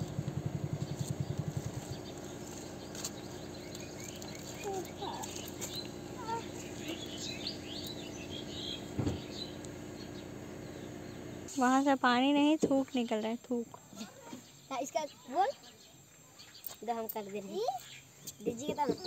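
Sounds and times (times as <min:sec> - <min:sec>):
rapid low throbbing: 0:00.0 - 0:11.5
steady low hum: 0:00.0 - 0:14.7
birds chirping: 0:00.0 - 0:19.0
thump: 0:09.0 - 0:09.4.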